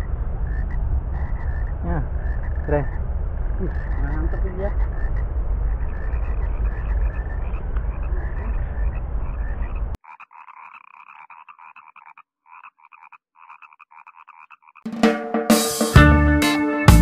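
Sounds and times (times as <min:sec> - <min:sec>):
loud rumbling noise: 0:00.0 - 0:10.0
frogs croaking: 0:00.0 - 0:14.9.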